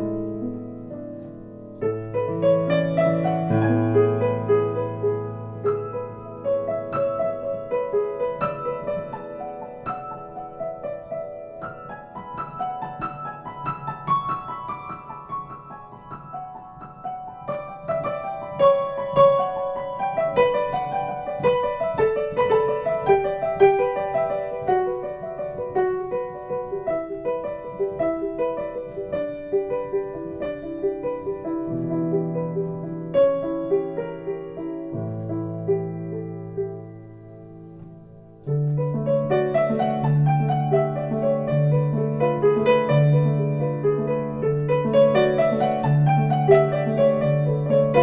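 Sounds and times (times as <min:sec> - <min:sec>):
solo piano piece: 0:00.0 - 0:48.0.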